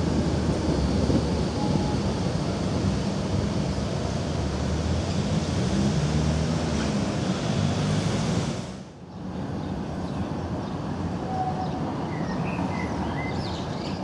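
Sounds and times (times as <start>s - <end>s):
distant tram: 0.0s - 14.0s
street ambience: 0.0s - 14.0s
tram rumbling: 0.0s - 14.0s.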